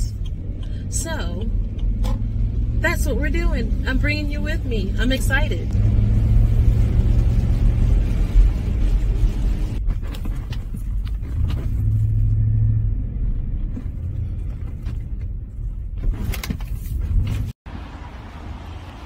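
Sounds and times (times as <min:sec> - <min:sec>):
car engine and road rumble: 0:00.0 - 0:19.0
tyre noise on wet road: 0:05.7 - 0:15.4, 0:17.7 - 0:19.0.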